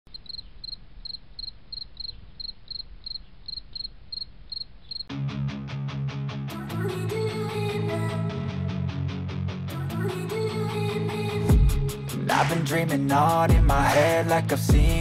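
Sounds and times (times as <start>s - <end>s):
cricket chirping: 0.1s - 5.1s.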